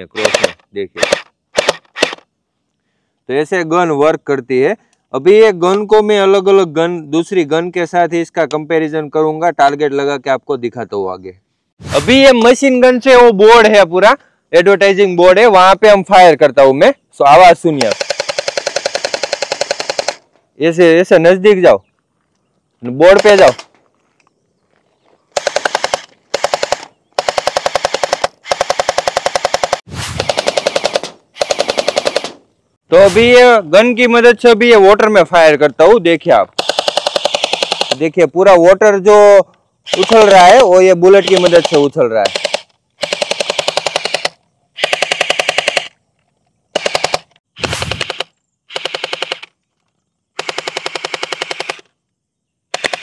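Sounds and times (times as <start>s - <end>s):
gel blaster firing bursts: 0.1s - 2.2s, 17.8s - 20.2s, 25.4s - 32.4s, 36.6s - 38.0s, 39.9s - 46.0s, 46.7s - 49.5s, 50.4s - 51.9s, 52.7s - 53.0s.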